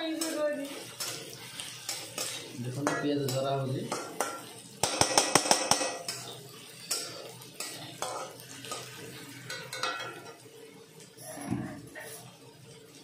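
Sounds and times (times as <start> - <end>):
onions frying: 0.0 - 13.0
metal spatula scraping pan: 0.1 - 10.2.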